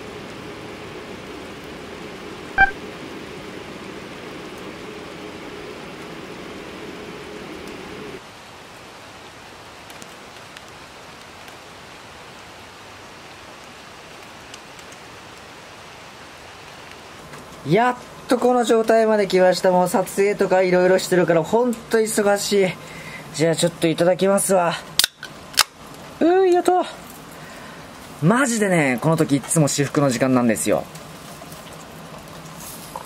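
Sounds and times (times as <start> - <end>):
pot bubbling: 30.5 - 33.0.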